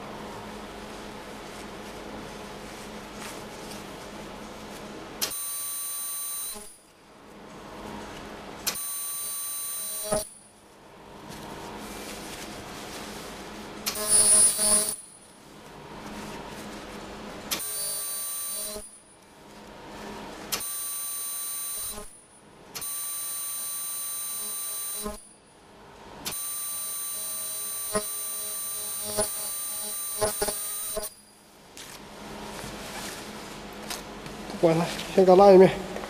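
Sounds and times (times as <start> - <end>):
high-pitched machine whine: 13.9 - 15.3, 17.5 - 19.2, 26.3 - 31.4.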